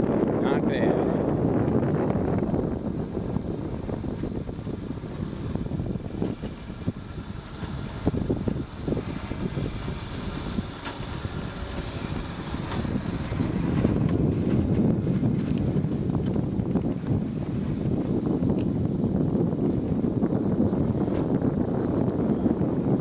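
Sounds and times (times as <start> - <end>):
wheels rumbling on rails: 0.0 - 23.0.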